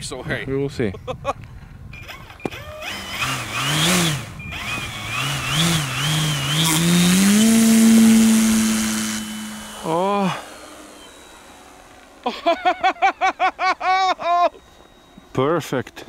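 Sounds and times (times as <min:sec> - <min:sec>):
model plane electric motor whine: 0:02.0 - 0:16.0.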